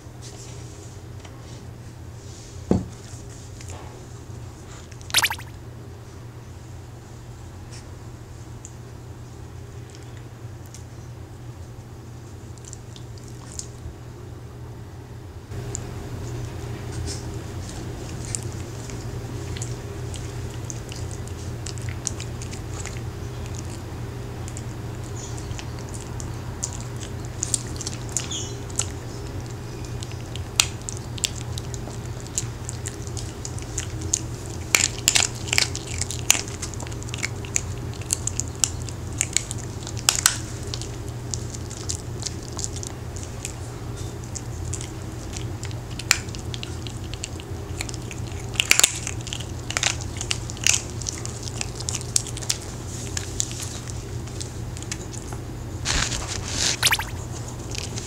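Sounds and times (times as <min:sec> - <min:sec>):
dog crunching hard cookies: 0:25.4 - 0:43.6, 0:44.2 - 0:55.3, 0:55.9 - 0:56.9.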